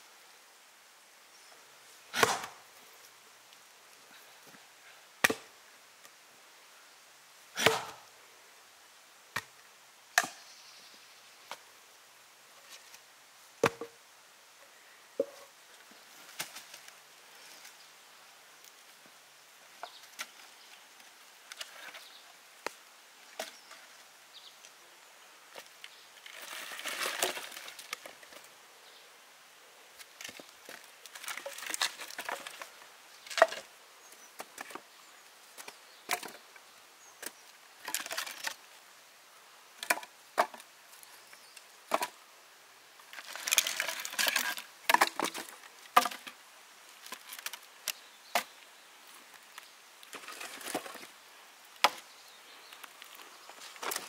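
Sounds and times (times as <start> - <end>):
wood rustling and splintering: 2.1 - 2.6, 25.6 - 28.4, 30.0 - 33.7, 37.2 - 38.6, 43.1 - 48.5, 49.3 - 51.2, 52.7 - 54.0
wood knocking and cracking: 13.6 - 14.0, 43.4 - 46.3, 51.8 - 52.0.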